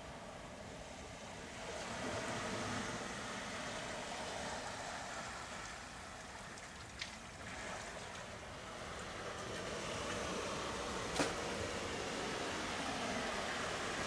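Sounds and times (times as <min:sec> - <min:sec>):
surf washing on beach: 0:00.1 - 0:14.0.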